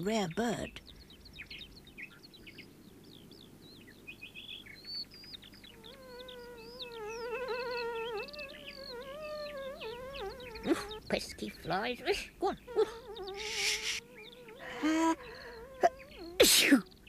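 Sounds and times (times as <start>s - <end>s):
birdsong chirps and trills: 0.0s - 17.0s.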